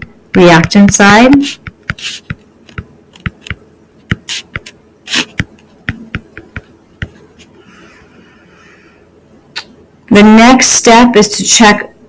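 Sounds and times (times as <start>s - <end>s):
stylus tapping on touchscreen: 0.0s - 7.2s.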